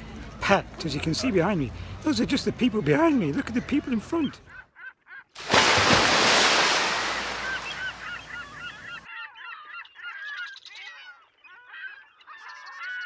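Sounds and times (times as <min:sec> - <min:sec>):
flock of birds calling: 0:04.4 - 0:13.0.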